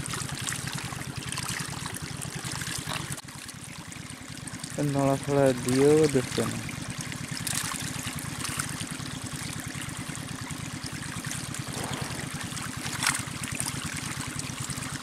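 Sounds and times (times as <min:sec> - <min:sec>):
water churning through channel: 0:00.0 - 0:15.0
steady low hum: 0:11.6 - 0:14.2.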